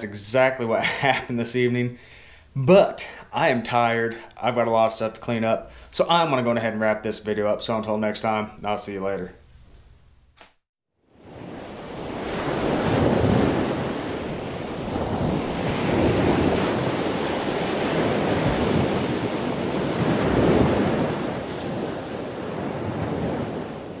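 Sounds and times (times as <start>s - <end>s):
ocean surf washing onto beach: 11.1s - 24.0s
wind noise: 11.4s - 24.0s.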